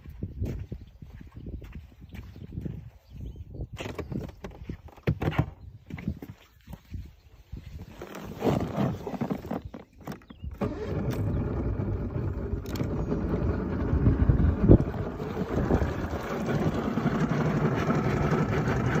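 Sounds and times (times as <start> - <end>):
wind noise: 0.0 - 19.0
outboard motor running: 10.5 - 19.0
water noise: 10.6 - 19.0.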